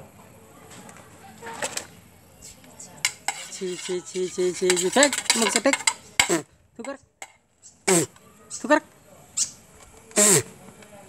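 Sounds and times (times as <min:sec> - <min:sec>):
metal spoon scraping a plate: 0:03.0 - 0:06.4
short pitched vocal sounds: 0:10.2 - 0:10.5.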